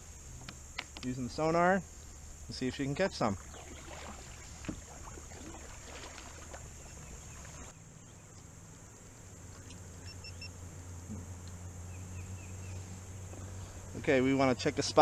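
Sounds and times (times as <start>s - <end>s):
faint chirps: 9.5s - 14.0s.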